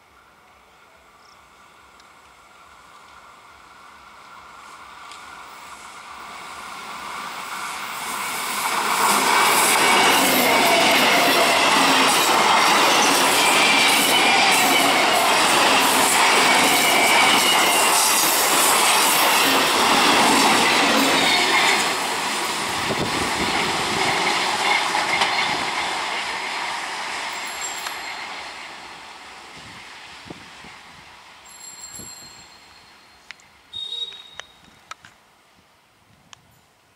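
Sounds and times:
train wheels rumbling over rails: 0:01.8 - 0:31.9
wheel squeal: 0:31.4 - 0:34.7.

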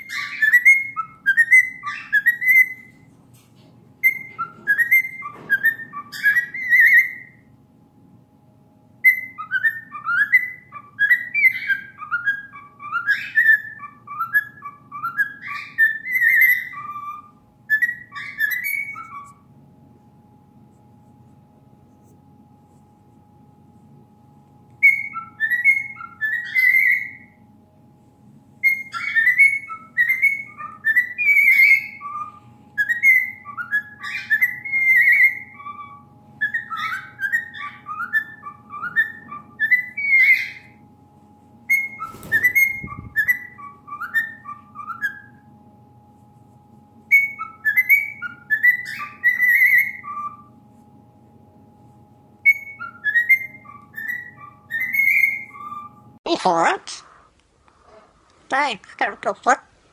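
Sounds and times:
cockatiel whistling: 0:00.0 - 0:03.0, 0:04.0 - 0:07.5, 0:09.0 - 0:19.4, 0:24.8 - 0:27.4, 0:28.6 - 0:40.8, 0:41.7 - 0:45.5, 0:47.1 - 0:50.5, 0:52.4 - 0:56.0.

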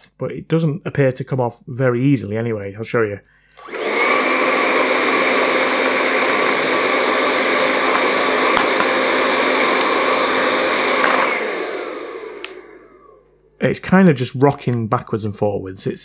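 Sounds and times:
hair dryer fan running: 0:03.6 - 0:13.5
hair dryer winding down whine: 0:03.6 - 0:13.5.

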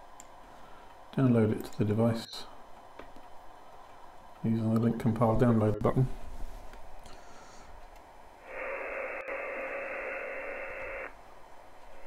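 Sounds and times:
radio band noise hiss: 0:08.4 - 0:11.2
steady heterodyne tone: 0:08.4 - 0:11.2.

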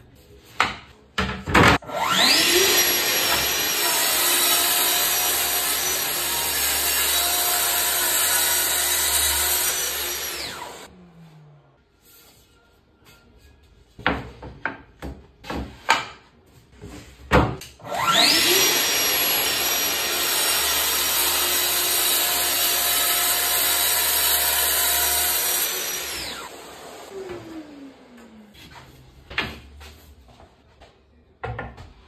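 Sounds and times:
track saw whining through cut: 0:01.9 - 0:11.0, 0:17.9 - 0:28.5.

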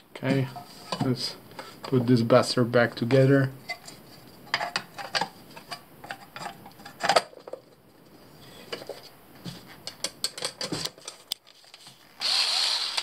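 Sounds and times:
cordless screwdriver whirring: 0:12.2 - 0:13.0.

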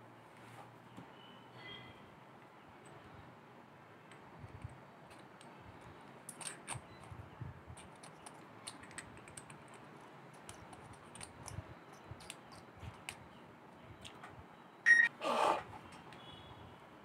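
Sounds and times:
small clicks and scrapes of parts: 0:04.1 - 0:13.2.

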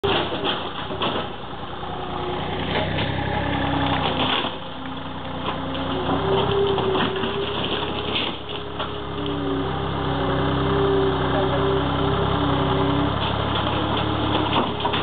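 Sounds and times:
loader engine running: 0:00.0 - 0:15.0
wood cracking: 0:02.6 - 0:09.4, 0:13.1 - 0:15.0.

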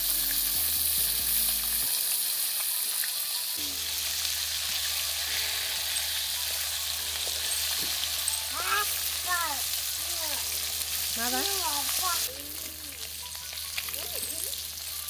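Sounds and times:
fish sizzling in hot oil: 0:00.0 - 0:15.0
metal spatula scraping wok: 0:03.6 - 0:08.5.

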